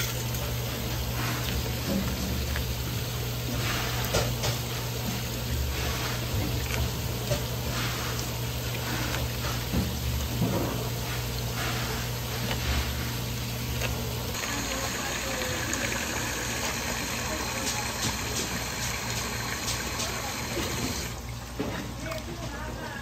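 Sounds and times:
water jet spraying: 0.0s - 21.2s.

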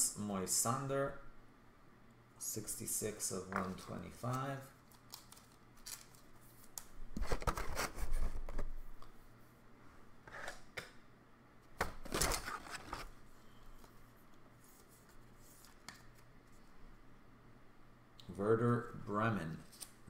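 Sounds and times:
plastic sleeves rustling and sliding: 12.0s - 16.8s.

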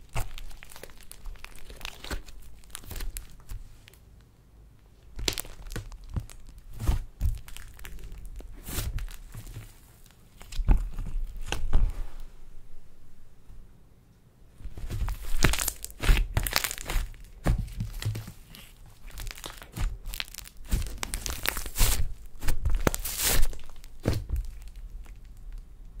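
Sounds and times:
slime crackling and popping: 0.0s - 4.0s, 5.1s - 11.8s, 14.9s - 26.0s.

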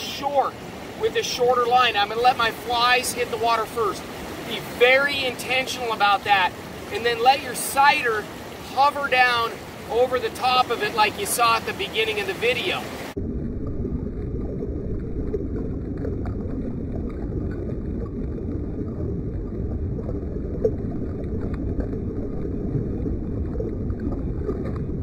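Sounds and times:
river current rushing: 0.0s - 13.2s
water splashing against microphone: 0.0s - 25.0s.

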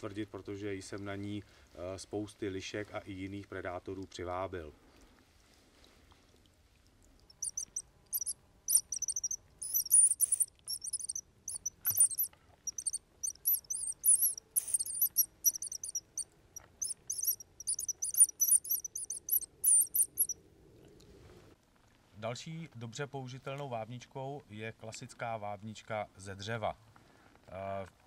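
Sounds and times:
mouse-squeak call squeaks: 7.3s - 20.4s.

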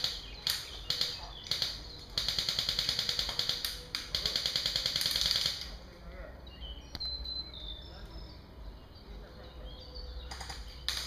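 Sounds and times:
airsoft gun firing bursts: 0.0s - 5.7s.

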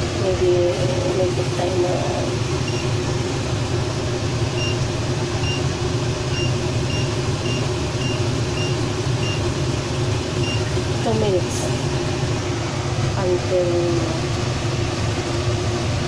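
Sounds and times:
steady low hum: 0.0s - 16.0s
hob touch control beeps: 2.6s - 2.9s, 4.6s - 4.8s, 5.4s - 5.7s, 6.3s - 9.4s, 10.4s - 10.7s.

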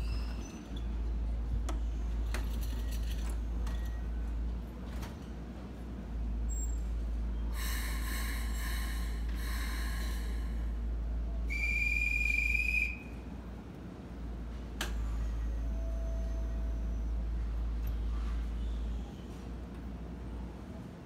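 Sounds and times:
train low hum: 0.0s - 21.0s
railway whistle blast: 11.5s - 13.2s.

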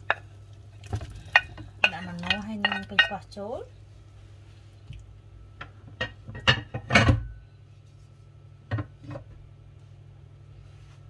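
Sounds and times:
steady low hum: 0.0s - 11.0s
cookware knocks and clinks: 6.0s - 7.3s.

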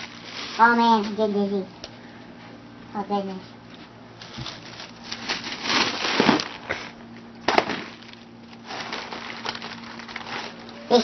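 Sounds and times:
balloon crinkling and rustling: 4.2s - 10.8s
balloon sharp crack: 5.7s - 6.8s, 7.4s - 8.0s.

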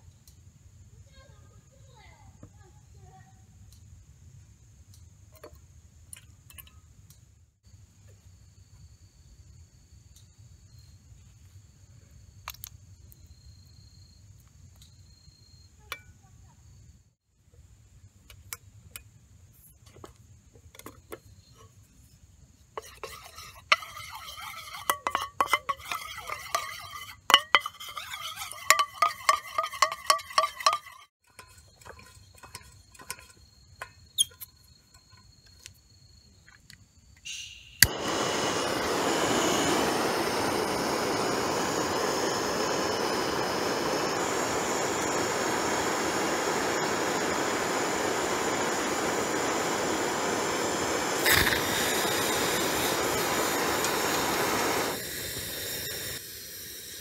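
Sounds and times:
click: 3.7s - 3.9s, 10.1s - 10.3s, 12.4s - 13.2s, 14.4s - 15.0s
metal spoon clinking in pot: 22.8s - 35.1s
gas torch hissing: 37.8s - 57.0s.

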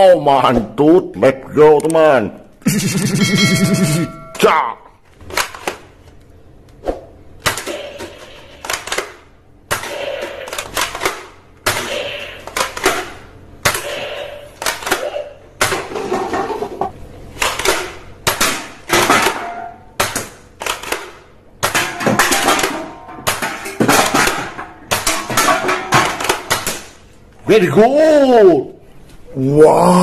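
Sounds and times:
toy guns clicking and snapping: 7.4s - 11.8s, 20.0s - 21.8s.

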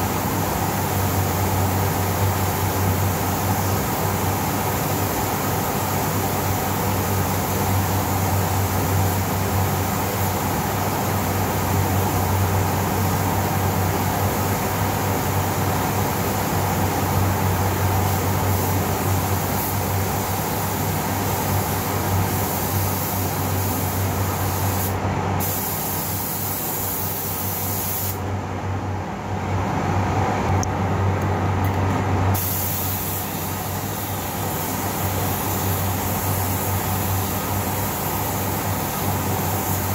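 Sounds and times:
paint spray gun hissing: 18.1s - 28.2s, 32.3s - 39.9s
fans humming: 28.1s - 39.8s.

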